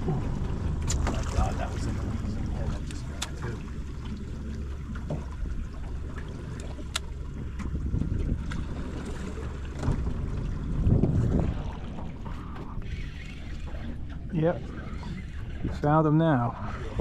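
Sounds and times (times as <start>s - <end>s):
low rumble of wind and water: 0.0s - 17.0s.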